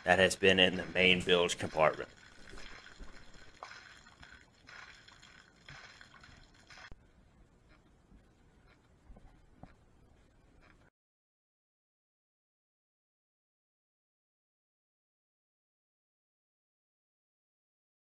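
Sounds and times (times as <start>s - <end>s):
water splashing onto gravel: 0.9s - 7.0s.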